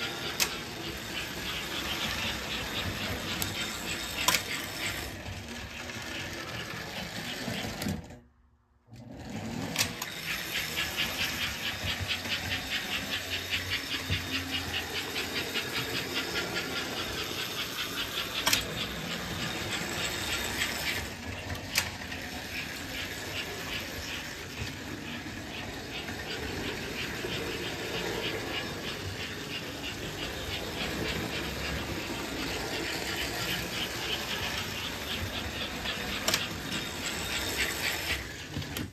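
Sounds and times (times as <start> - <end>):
toy train wheels clattering: 0.0 - 8.2, 9.0 - 38.9.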